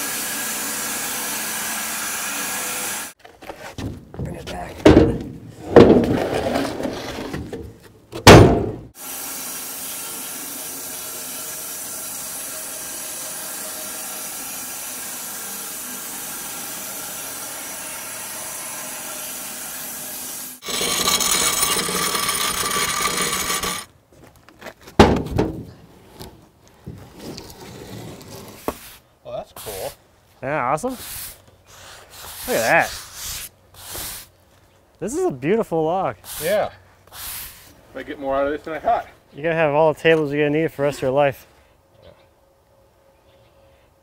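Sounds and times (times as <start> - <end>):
bandsaw mill cutting log: 0.0 - 3.2, 9.0 - 23.9
wooden slabs knocking: 3.8 - 6.2.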